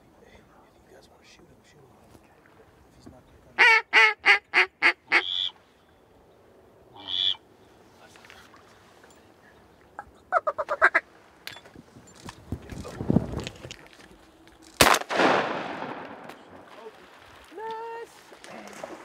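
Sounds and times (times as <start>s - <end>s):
duck call quacks: 3.6s - 5.6s, 7.0s - 7.4s, 10.3s - 11.1s
low rustling: 11.0s - 19.0s.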